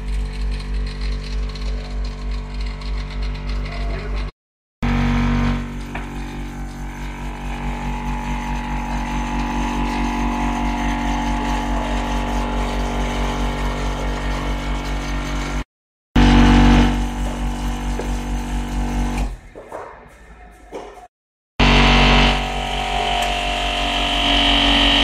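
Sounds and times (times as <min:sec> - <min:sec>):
vibrator machine humming and pulsing: 0:00.0 - 0:25.0.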